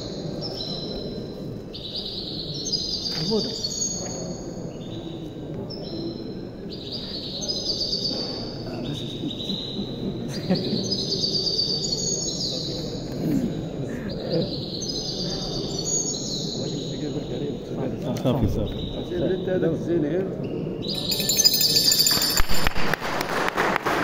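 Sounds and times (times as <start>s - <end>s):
murmur of people: 0.0s - 24.0s
songbird trilling: 20.8s - 22.4s.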